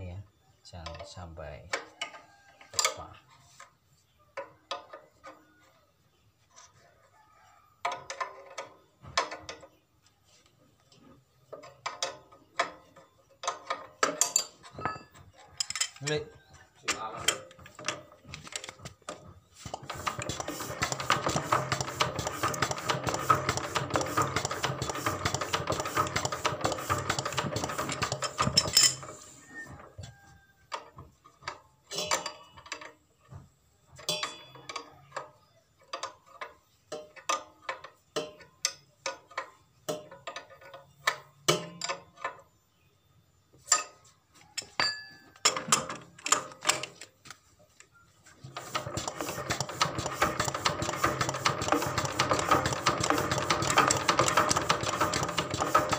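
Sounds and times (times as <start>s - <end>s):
metallic clicks and knocks: 11.5s - 16.1s, 34.0s - 42.5s, 43.6s - 47.2s.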